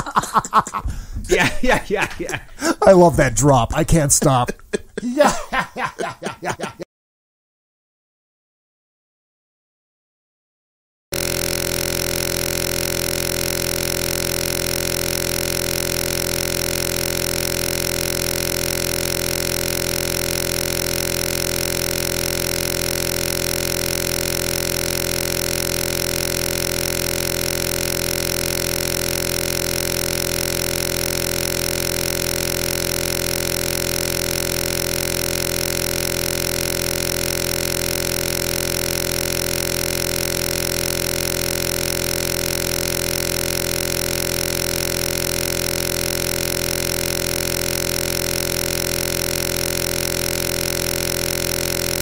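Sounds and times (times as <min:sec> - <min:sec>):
fluttering electronic buzz: 0:11.1 - 0:52.0.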